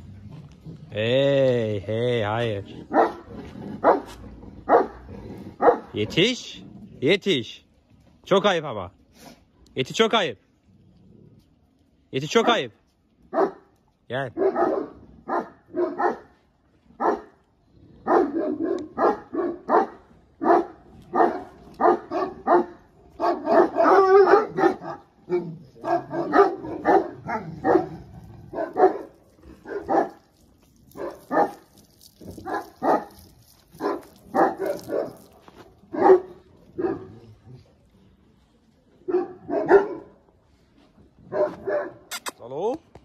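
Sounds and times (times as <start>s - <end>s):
dogs barking deeply: 2.2s - 7.4s, 13.3s - 37.9s, 38.9s - 40.3s, 41.2s - 42.1s.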